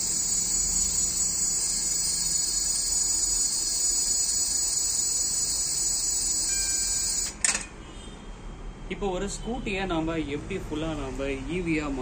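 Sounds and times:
electric motor whine: 0.0 - 4.4.

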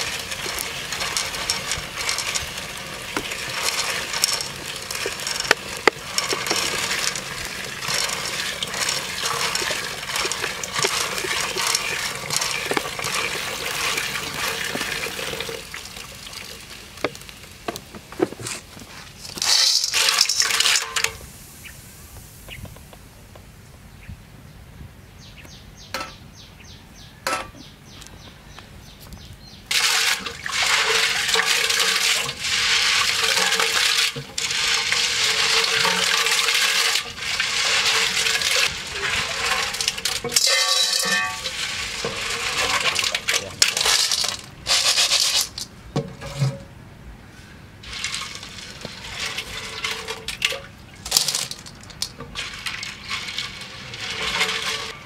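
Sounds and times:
shells clattering against metal wok: 0.0 - 14.6, 38.0 - 45.7
liquid splashing and sloshing: 0.0 - 21.2, 29.7 - 46.6, 47.8 - 55.0.

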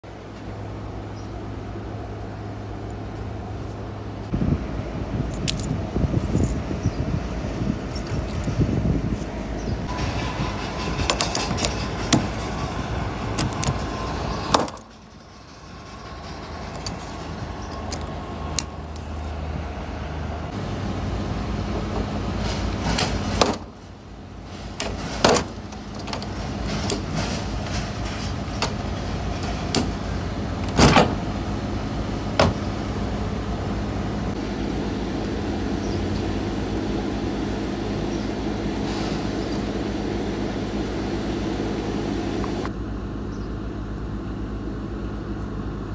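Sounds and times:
steady machinery hum: 0.1 - 45.9
metal latches clicking open: 17.7 - 19.1.

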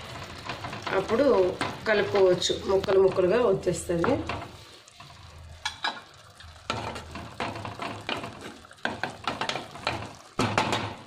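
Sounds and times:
food sizzling: 0.0 - 11.0
spatula scraping a pan: 0.0 - 11.0.

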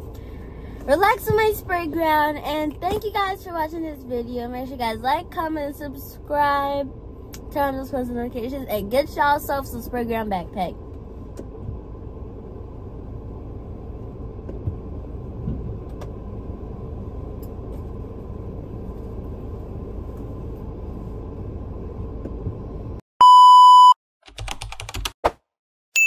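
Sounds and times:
low rumble in car cabin: 0.0 - 23.0
electronic beep: 23.2 - 24.0
keyboard typing clicks: 24.2 - 25.2.

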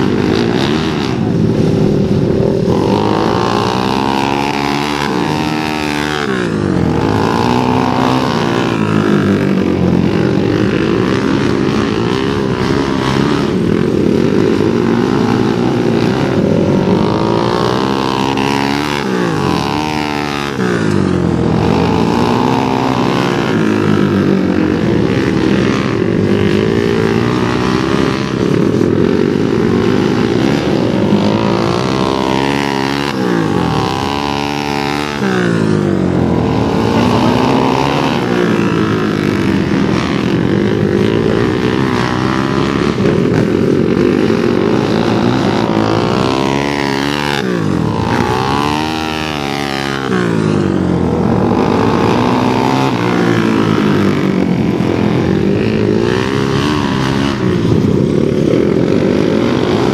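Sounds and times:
motorcycle engines revving: 0.0 - 59.9.

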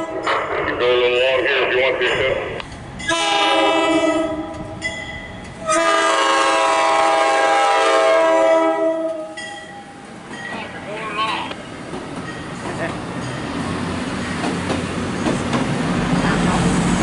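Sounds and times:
train horn blasts: 3.1 - 4.6, 5.6 - 9.5.

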